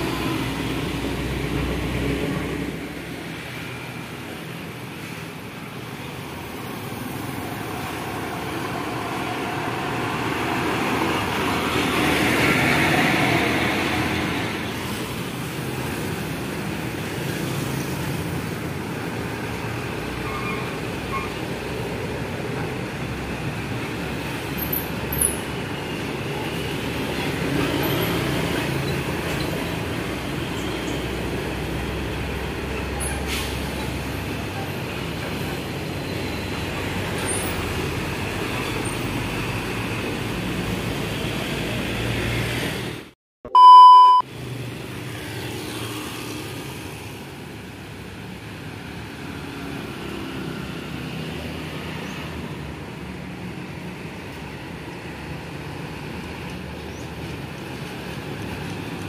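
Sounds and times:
highway traffic rumble: 0.0s - 59.0s
short high beep: 43.5s - 44.2s.

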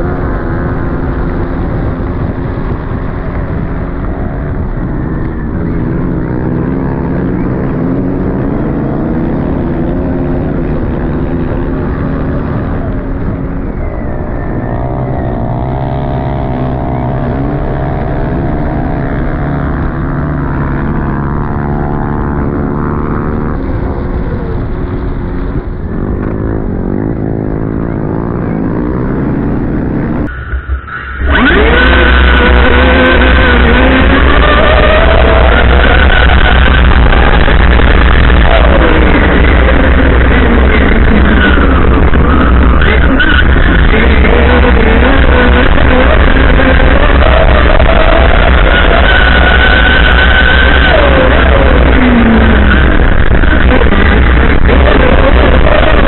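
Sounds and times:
wind and tyre noise: 0.0s - 56.0s
electric motor whine: 31.2s - 56.0s.

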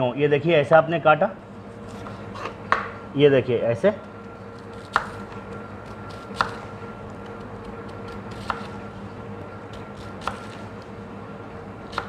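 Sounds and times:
background hum: 0.0s - 12.0s
knife slicing onion: 4.5s - 11.0s.

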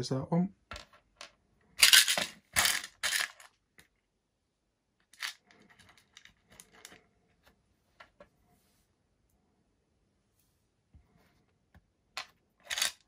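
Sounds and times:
metal screws clattering on wood: 0.7s - 3.6s, 12.2s - 13.0s.

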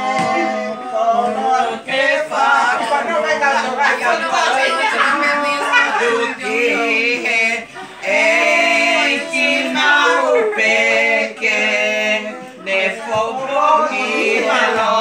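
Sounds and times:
men and women singing unaccompanied: 0.0s - 15.0s.

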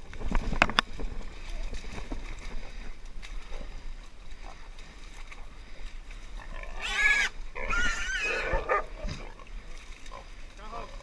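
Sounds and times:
pig squealing loudly: 6.6s - 8.9s.

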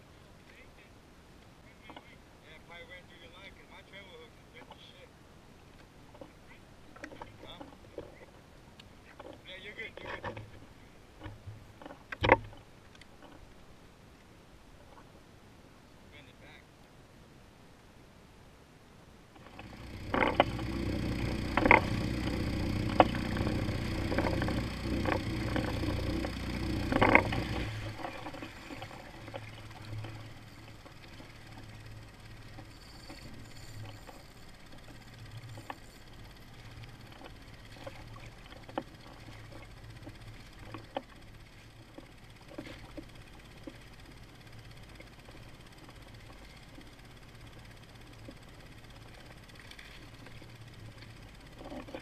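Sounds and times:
outboard motor running: 6.1s - 8.4s, 9.0s - 13.5s, 19.4s - 52.0s.

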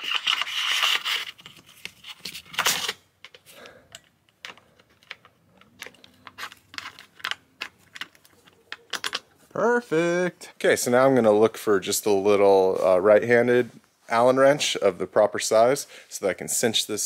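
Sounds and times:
small clicks and taps of parts: 3.2s - 9.2s.

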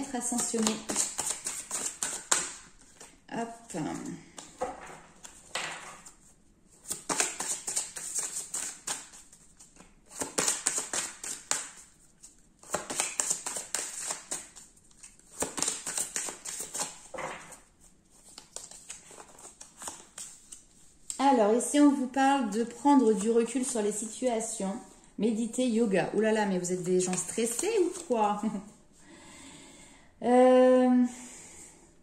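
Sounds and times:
cards being shuffled: 0.2s - 3.2s, 3.8s - 21.2s, 26.6s - 28.5s.

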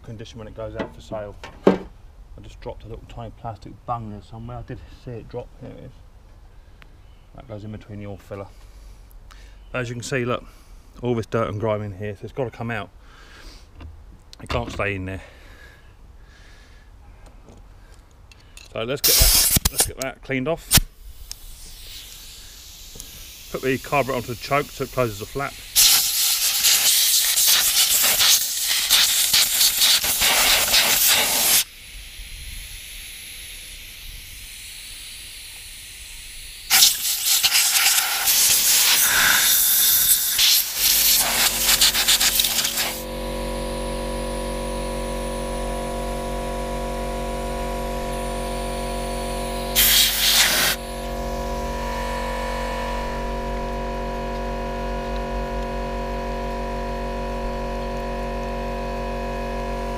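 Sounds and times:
compressed air blow gun hissing: 19.0s - 19.8s, 20.7s - 43.1s, 49.6s - 52.0s
air compressor motor humming: 21.6s - 59.9s.

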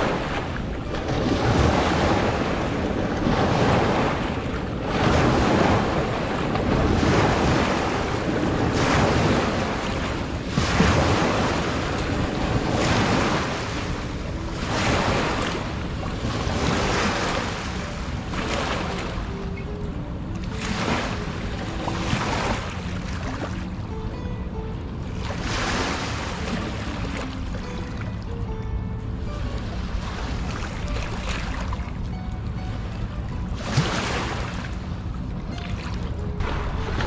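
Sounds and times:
small waves breaking on rocks: 0.0s - 19.2s.

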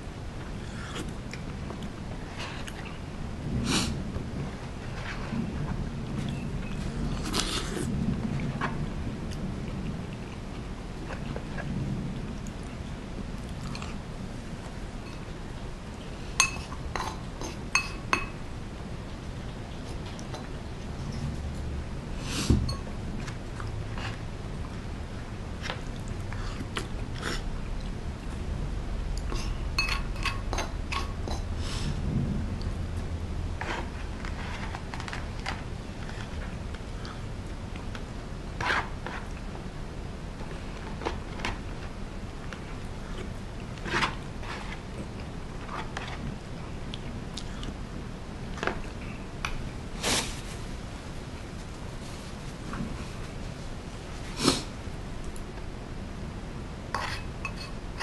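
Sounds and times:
steady low hum: 0.0s - 58.0s
chewing and sipping: 42.5s - 47.8s
wooden spoon scraping bowls: 56.9s - 58.0s.

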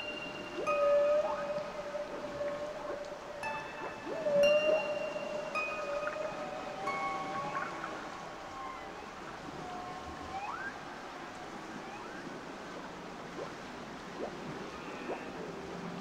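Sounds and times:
ocean surf: 0.0s - 16.0s.

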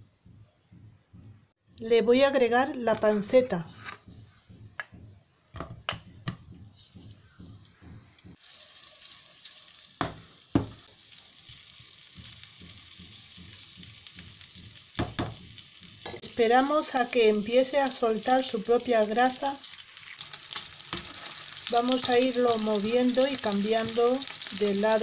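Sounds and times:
plastic spatula knocking pan: 3.8s - 8.4s, 10.0s - 10.8s, 15.0s - 15.5s
pork cubes knocking into pan: 4.1s - 8.4s, 10.0s - 11.0s, 12.0s - 16.2s
pork sizzling in oil: 8.1s - 25.0s.

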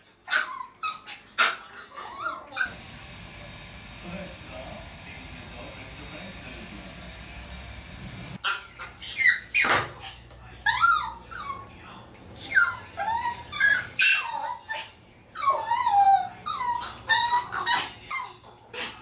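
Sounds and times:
dogs whining and yelping: 0.2s - 3.2s, 8.3s - 10.0s, 10.6s - 11.8s, 12.4s - 19.0s.

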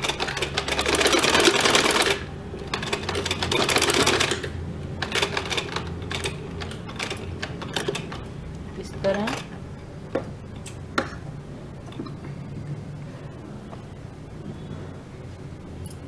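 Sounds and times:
sewing machine stitching: 0.0s - 8.2s.

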